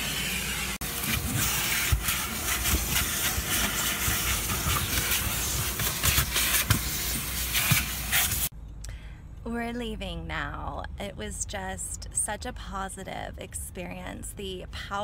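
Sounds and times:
vacuum hose rushing hiss: 0.0 - 8.5.

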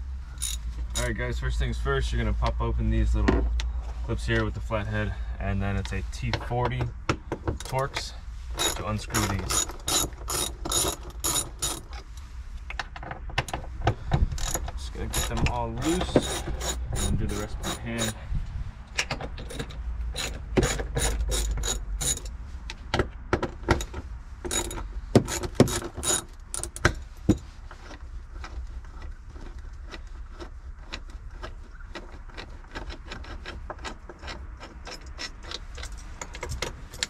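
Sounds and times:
ratchet clicking: 0.4 - 1.1, 8.6 - 11.9, 14.4 - 18.2, 19.5 - 22.3, 24.5 - 26.9.

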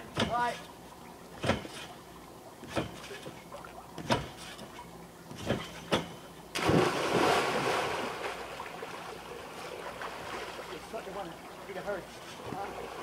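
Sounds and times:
water sloshing: 0.0 - 13.0
thumps on trampoline: 1.4 - 1.9, 2.6 - 3.4, 4.0 - 7.1
body splashing into water: 6.5 - 9.2.

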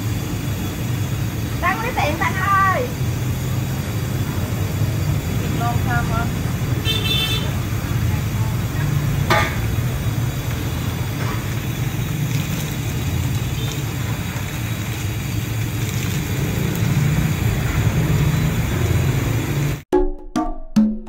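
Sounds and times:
street traffic rumble: 0.0 - 19.8.

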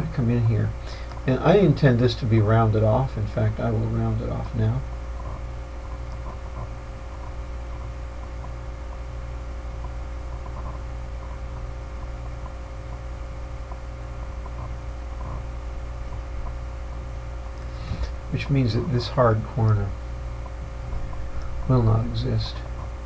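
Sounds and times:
faint steady tones: 0.0 - 23.0
low electrical hum: 0.0 - 23.0
microphone hiss: 0.0 - 23.0
faint ticks: 9.7 - 18.2.

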